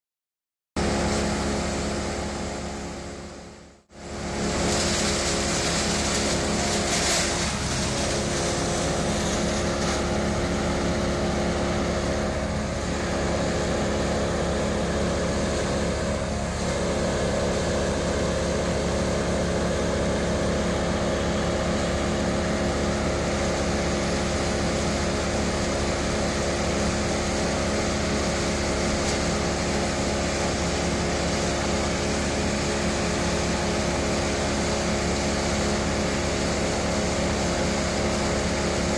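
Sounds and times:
heavy machinery engine running: 0.8s - 38.9s.

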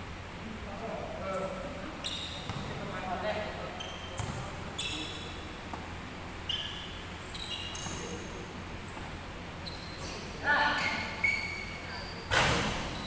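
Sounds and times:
sneakers squeaking on hardwood: 1.3s - 2.9s, 3.7s - 13.0s.

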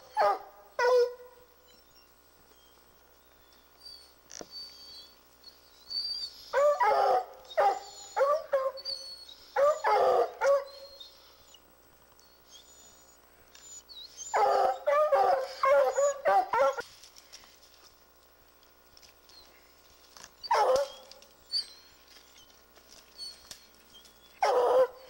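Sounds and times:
hounds baying: 3.3s - 11.6s, 12.4s - 16.8s, 20.4s - 25.0s.

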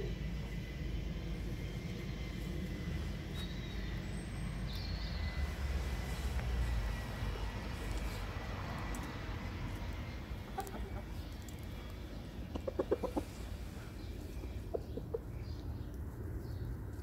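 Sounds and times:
rooster clucking: 10.4s - 11.2s, 12.5s - 13.5s, 14.4s - 15.3s.

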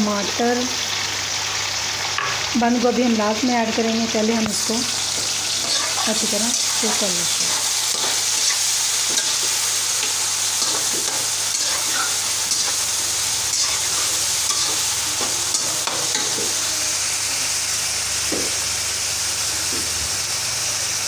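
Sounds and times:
vegetables sizzling in pan: 0.0s - 21.0s
metal spatula scraping pan: 5.5s - 12.9s, 13.5s - 16.6s.

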